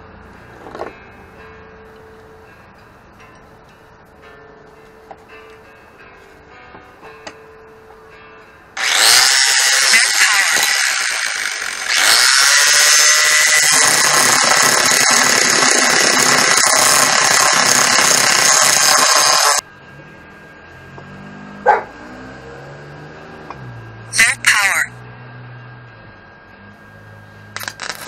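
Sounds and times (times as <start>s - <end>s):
angle grinder grinding metal: 8.8s - 21.8s, 27.5s - 28.0s.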